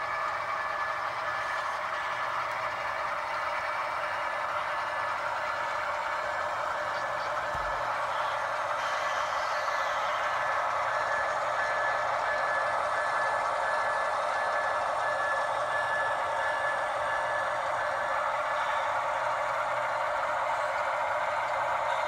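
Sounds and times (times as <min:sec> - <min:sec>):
model diesel engine drone: 0:00.0 - 0:22.0.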